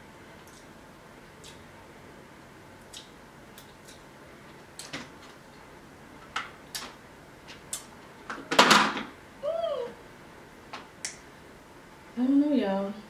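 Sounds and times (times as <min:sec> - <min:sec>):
person chewing with mouth clicks: 0:00.4 - 0:00.7, 0:01.4 - 0:01.7, 0:02.8 - 0:04.1
person humming: 0:09.4 - 0:10.0.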